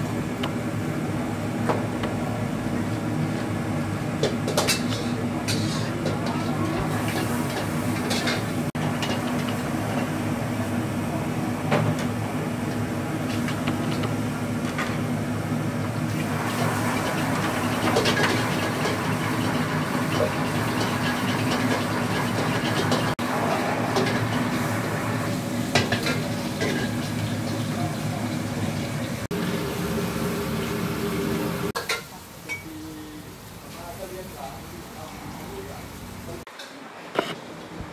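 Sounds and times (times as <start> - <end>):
frying hiss: 16.0 - 37.1.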